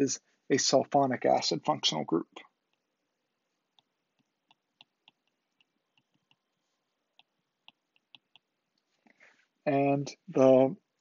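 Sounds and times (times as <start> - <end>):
stylus tapping on a tablet: 3.7 - 8.6.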